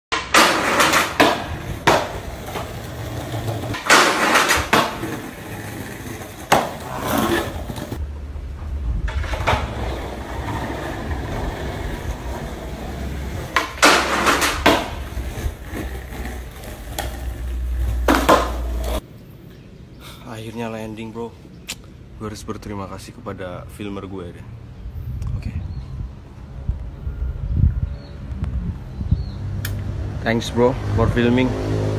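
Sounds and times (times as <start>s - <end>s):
skateboard clacking: 0.1s - 8.0s, 9.1s - 19.0s
skateboard wheels rolling on tiles: 0.1s - 8.0s, 8.6s - 19.0s.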